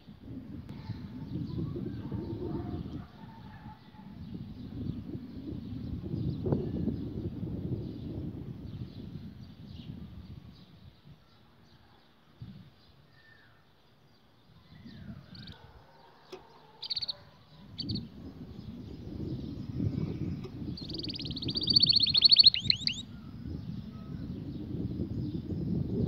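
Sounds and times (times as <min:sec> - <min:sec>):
canary chirping and trilling: 0:16.6 - 0:18.1, 0:20.8 - 0:23.0.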